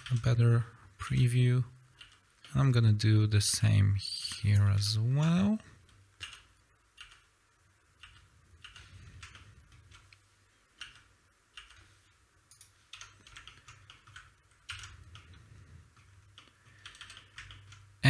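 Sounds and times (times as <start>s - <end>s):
low steady hum: 0.0s - 18.0s
keyboard and mouse clicks: 2.0s - 2.6s, 5.9s - 7.3s, 8.0s - 17.9s.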